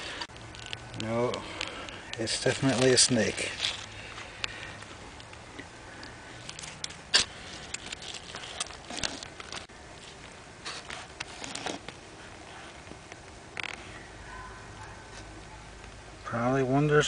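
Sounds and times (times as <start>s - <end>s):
rustling over dirt and leaves: 0.0s - 14.3s.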